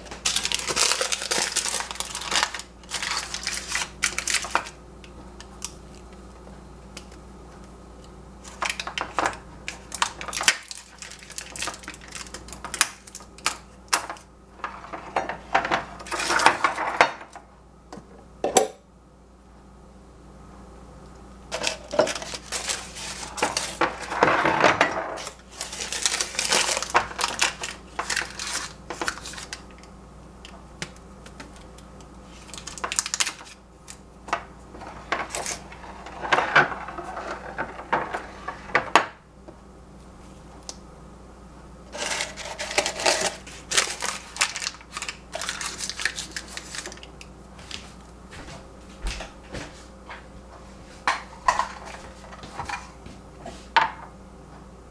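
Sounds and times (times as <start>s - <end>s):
paper crinkling: 0.0s - 4.8s, 8.4s - 13.6s, 21.6s - 24.3s, 25.2s - 29.9s, 31.3s - 34.0s, 41.9s - 47.8s.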